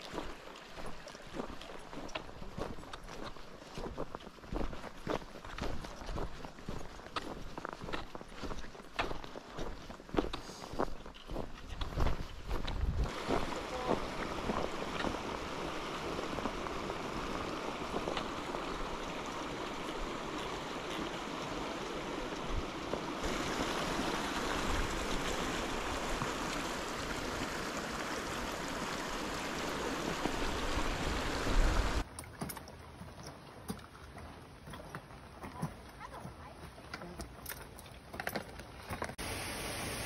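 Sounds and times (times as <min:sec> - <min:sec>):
creek water rushing: 0:00.0 - 0:37.8, 0:38.9 - 0:40.0.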